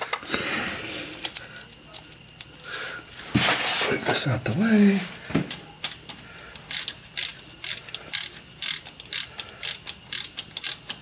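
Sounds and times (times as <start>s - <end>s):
ratchet clicking: 1.2s - 2.5s, 5.8s - 11.0s.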